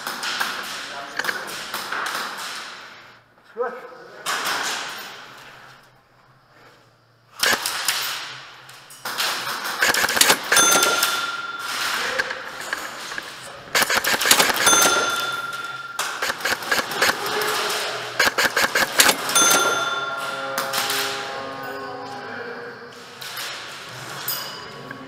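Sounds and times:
airsoft guns firing: 0:00.0 - 0:03.0, 0:07.4 - 0:08.5, 0:09.1 - 0:21.1
pellets clattering on plywood: 0:07.5 - 0:20.9
high beep: 0:09.8 - 0:11.8, 0:13.8 - 0:17.1, 0:18.2 - 0:20.3.

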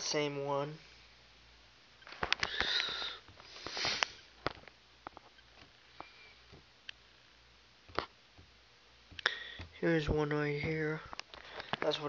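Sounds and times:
person sniffing: 0:02.5 - 0:04.3.

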